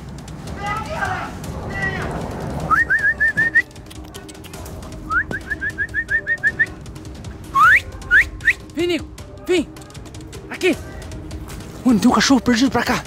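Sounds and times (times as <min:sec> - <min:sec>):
person whistling: 0:02.7 - 0:03.8, 0:05.1 - 0:06.8, 0:07.5 - 0:08.7.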